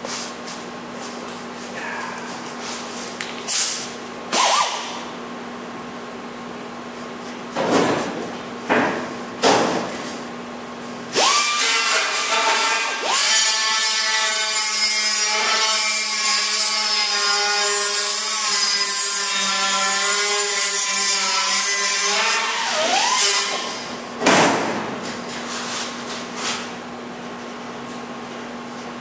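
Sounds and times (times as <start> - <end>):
grinder grinding sheet steel: 11.1 - 23.9.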